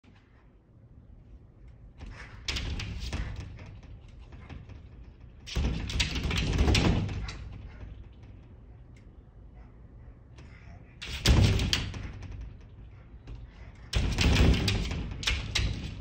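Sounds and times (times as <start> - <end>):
dog pawing at glass door: 1.9 - 8.8, 10.4 - 16.0.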